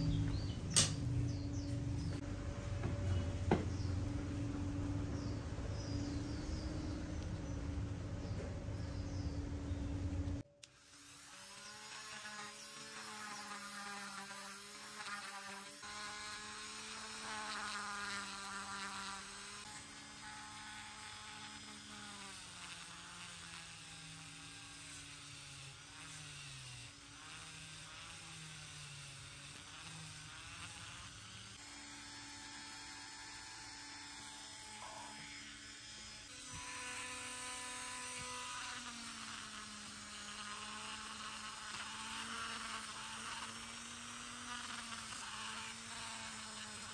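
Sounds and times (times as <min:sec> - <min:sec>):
rotary tool whining: 0:10.4 - 0:46.9.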